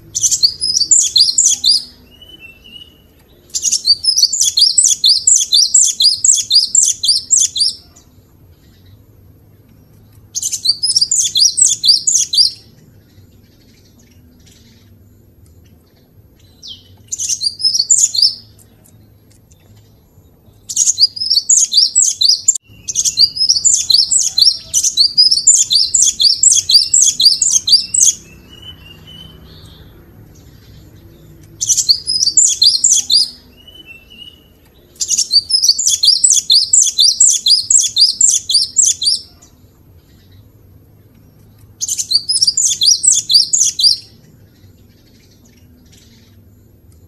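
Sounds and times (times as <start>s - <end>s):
bird singing high notes: 20.7s - 39.3s.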